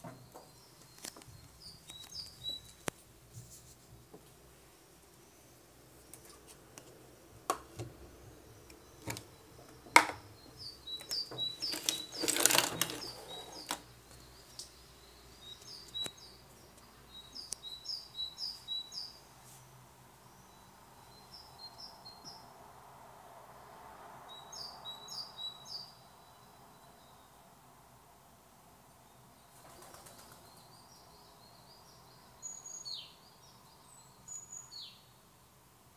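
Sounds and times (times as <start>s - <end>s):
small birds chirping: 0.0s - 22.5s, 29.0s - 35.4s
loud scrabbling rustle: 11.0s - 13.8s.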